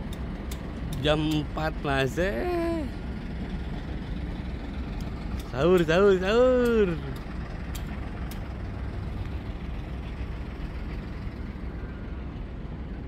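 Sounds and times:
diesel engine idling: 0.0s - 13.0s.

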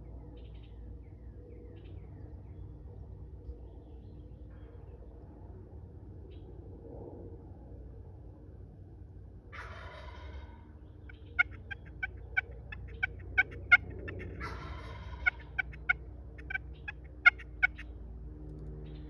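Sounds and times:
turkey gobble: 9.6s - 17.9s
turkeys clucking: 9.6s - 17.9s.

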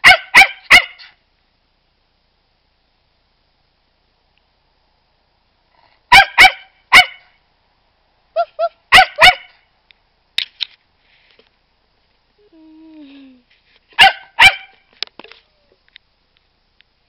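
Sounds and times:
dog barking: 0.0s - 1.2s, 6.1s - 7.4s, 8.4s - 9.6s, 14.0s - 14.8s.

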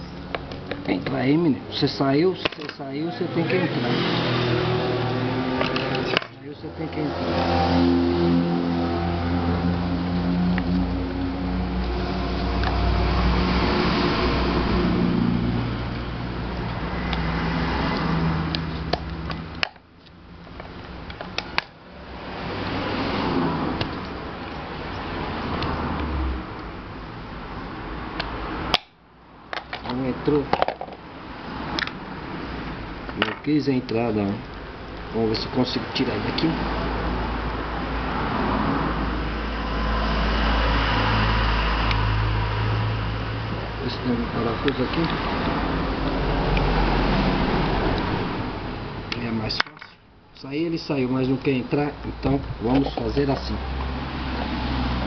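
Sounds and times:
motor vehicle rumble: 0.0s - 55.0s
clicks of fan parts handled: 2.4s - 2.8s, 5.6s - 6.4s, 28.2s - 31.0s, 49.6s - 50.0s.

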